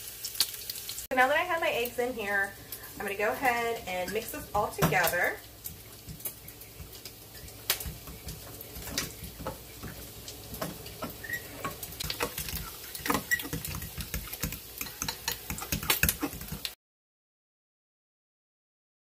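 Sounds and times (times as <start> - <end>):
wet batter stirring: 4.9 - 16.8.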